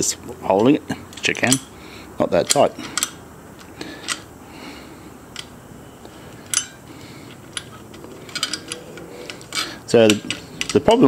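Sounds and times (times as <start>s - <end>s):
spanner clicking on metal nut: 0.6s - 1.7s, 2.4s - 3.2s, 6.5s - 6.7s, 7.3s - 11.0s.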